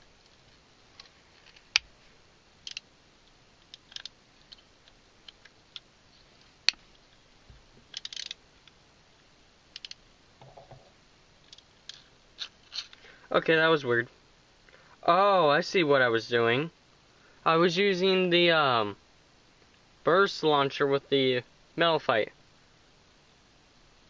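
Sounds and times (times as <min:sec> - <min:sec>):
sharp knocks: 0:10.4 - 0:10.9.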